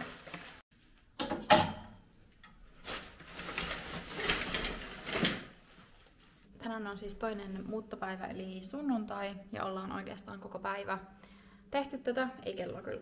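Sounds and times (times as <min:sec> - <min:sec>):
plastic bag rustling: 0:00.0 - 0:00.6, 0:02.6 - 0:06.5.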